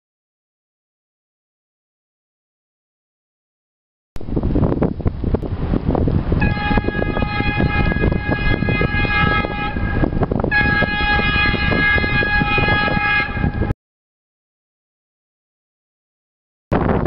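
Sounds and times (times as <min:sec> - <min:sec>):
wind rumble on microphone: 0:04.2 - 0:13.8, 0:16.7 - 0:17.0
locomotive horn blasts: 0:06.4 - 0:13.7.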